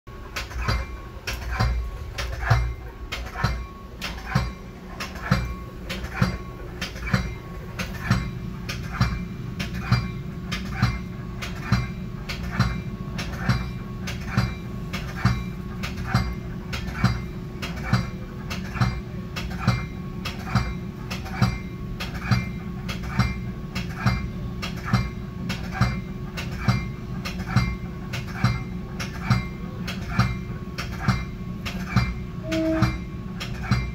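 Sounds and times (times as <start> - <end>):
idling train rumble and hum: 0.1 - 33.9
train warning bell ringing: 32.4 - 33.2.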